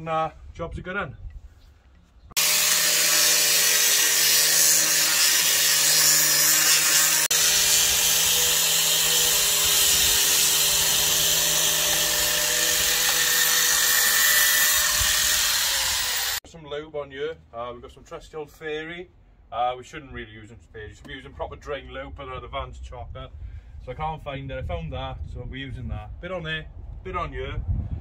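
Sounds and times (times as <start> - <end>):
angle grinder grinding pipe: 2.4 - 16.4.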